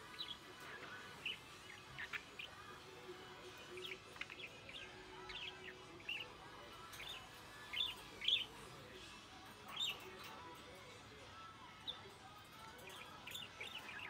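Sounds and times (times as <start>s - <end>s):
budgerigar chirping and warbling: 0.0s - 8.6s.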